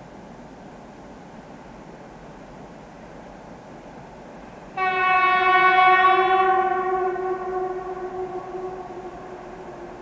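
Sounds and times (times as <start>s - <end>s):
locomotive air horn blast: 4.8s - 10.0s.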